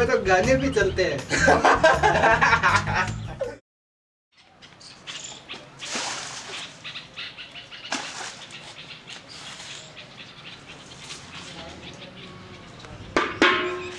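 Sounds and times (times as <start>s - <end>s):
water splashing onto bush: 5.6s - 6.9s, 7.8s - 9.8s
leaves rustling and crackling: 5.6s - 10.2s, 10.8s - 11.9s.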